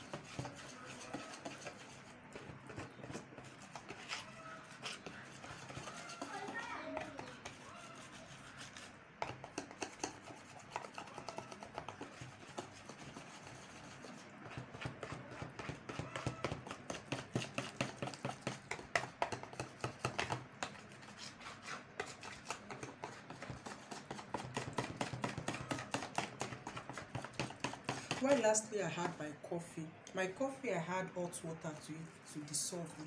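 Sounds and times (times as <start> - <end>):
utensil tapping plastic bowl: 9.2 - 12.7, 14.4 - 20.7, 22.6 - 29.2.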